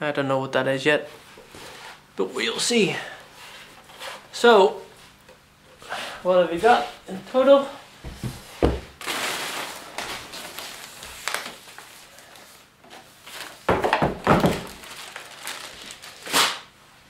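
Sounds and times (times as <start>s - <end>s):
plastic wrap rustling: 8.3s - 16.8s.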